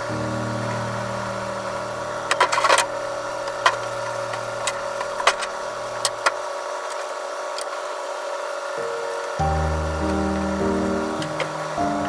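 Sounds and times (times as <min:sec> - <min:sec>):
low hum: 0:00.0 - 0:06.2, 0:08.8 - 0:12.0
steady hiss: 0:00.0 - 0:07.0, 0:08.1 - 0:12.0.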